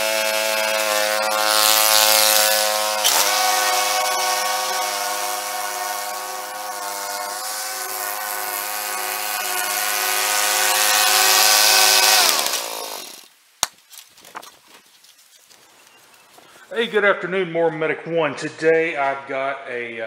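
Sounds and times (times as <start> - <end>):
lawn mower engine running: 0.0 - 13.3.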